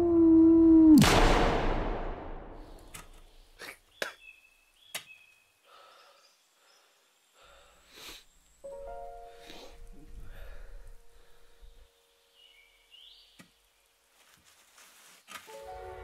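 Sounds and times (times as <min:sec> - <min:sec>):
gunshot with echo: 0:01.0 - 0:02.7.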